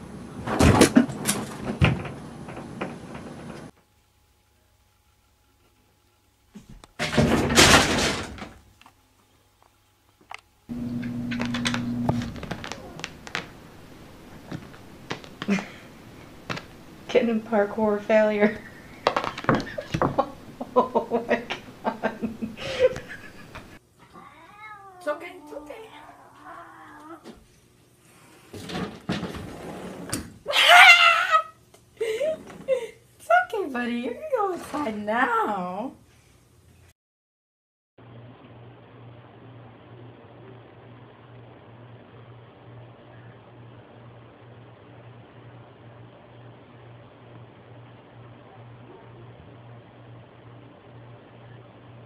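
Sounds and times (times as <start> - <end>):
wardrobe door bang and rattle: 7.0 - 8.6
low steady hum: 10.4 - 27.1
scuffling thumps on carpet: 12.1 - 16.9.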